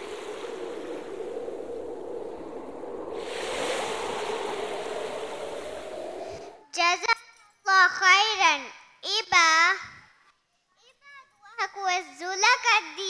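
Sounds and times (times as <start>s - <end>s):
ocean waves surf hiss: 0.0s - 6.6s
wave breaking: 0.0s - 6.6s.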